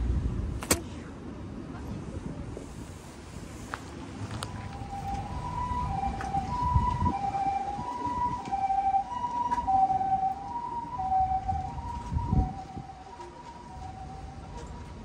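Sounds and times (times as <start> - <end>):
two-tone ambulance siren: 4.2 - 15.0.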